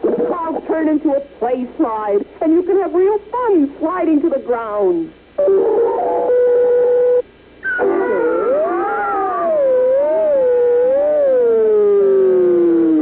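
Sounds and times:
held cartoon tone: 5.4 - 7.0, 7.6 - 13.0
swooping howl-like tone: 7.6 - 13.0.

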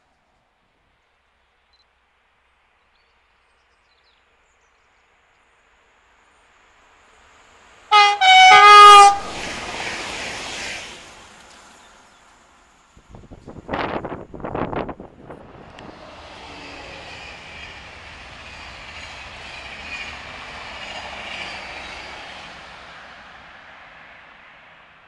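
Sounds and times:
rush of train passing: 5.0 - 25.0
train horn blasts: 7.9 - 9.4.

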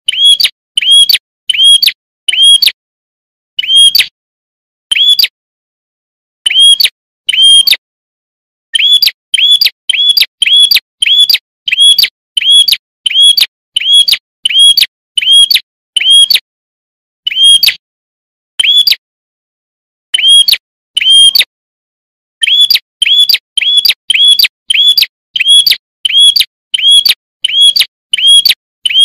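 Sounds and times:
bird chirping: 0.1 - 2.7, 3.6 - 4.1, 4.9 - 5.4, 6.4 - 7.8, 8.7 - 16.3, 17.3 - 17.8, 18.6 - 19.0, 20.1 - 21.5, 22.4 - 29.0.

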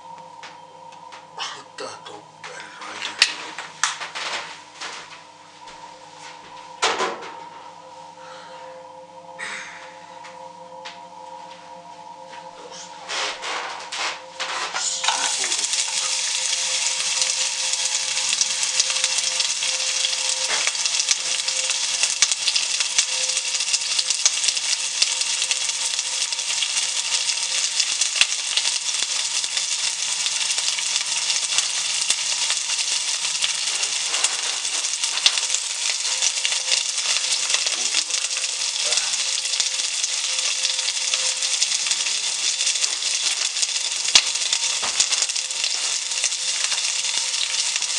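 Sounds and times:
food sizzling in frying pan: 13.1 - 47.9.

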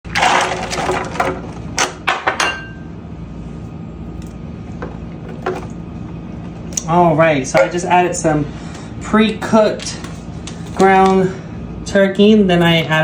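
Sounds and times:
glass clinking and knocking: 2.2 - 2.8.

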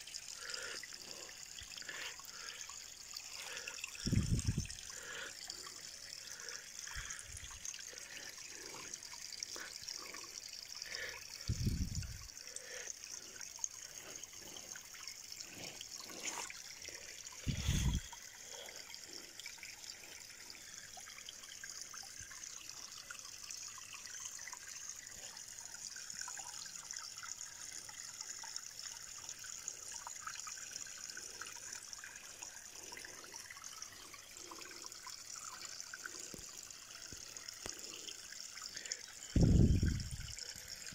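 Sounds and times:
water trickling into pond: 0.0 - 40.9.

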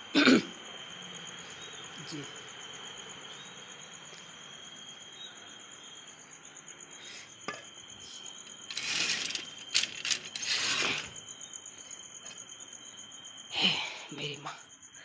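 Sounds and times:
crickets chirping: 0.0 - 15.0
metal gate rattling and clinking: 8.7 - 11.1.

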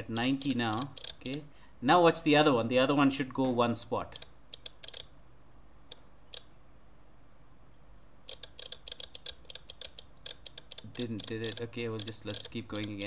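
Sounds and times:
impulse counter ticking: 0.0 - 1.4, 8.4 - 13.0.

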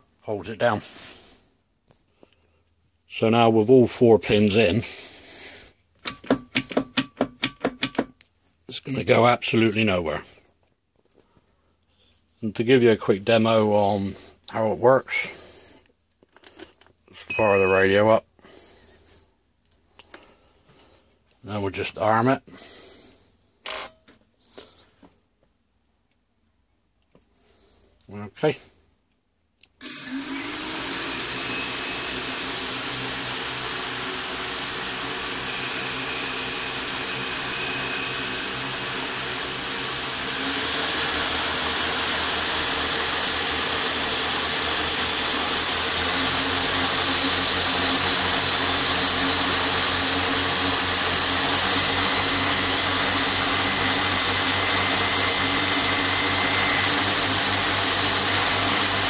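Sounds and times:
quadcopter propellers whirring: 29.8 - 59.0.

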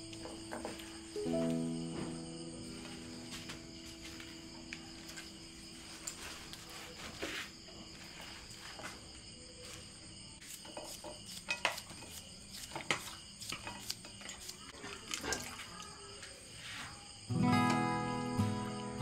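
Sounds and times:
insects chirring: 0.0 - 19.0.

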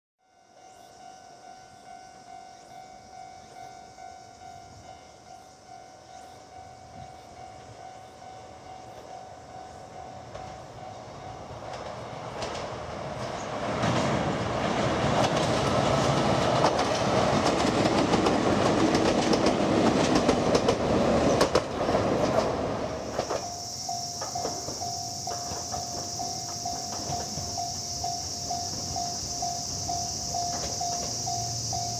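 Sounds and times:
level-crossing warning bell ringing: 0.2 - 12.6, 23.1 - 31.9
electric train passing: 0.2 - 31.9
wheels clicking over rail joints: 6.6 - 31.9.

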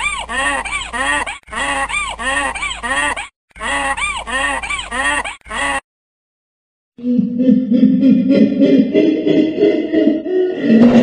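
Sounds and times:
donkey braying: 0.0 - 5.8.

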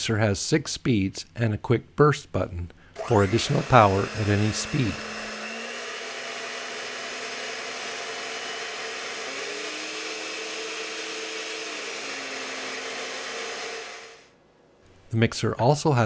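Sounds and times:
stand mixer motor running: 3.0 - 14.2.

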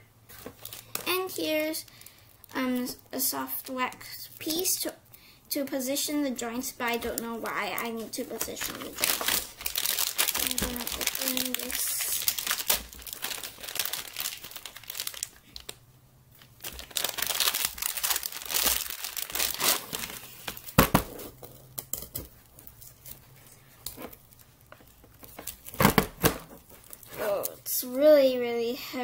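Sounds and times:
plastic wrapping crinkling: 0.3 - 3.0, 6.4 - 21.4, 22.3 - 28.0.

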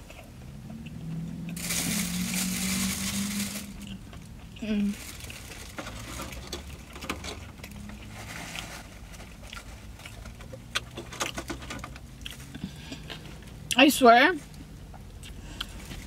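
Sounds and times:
low hum: 0.0 - 8.1
mouth chewing clicks and smacks: 14.9 - 15.8.

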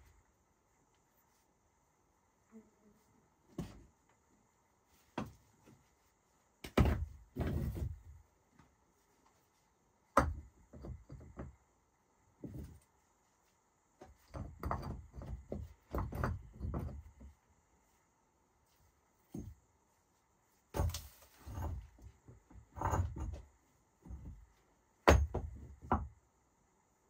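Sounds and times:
stones knocking and thudding: 6.6 - 8.0, 10.1 - 11.6, 14.0 - 17.3, 20.7 - 26.2.

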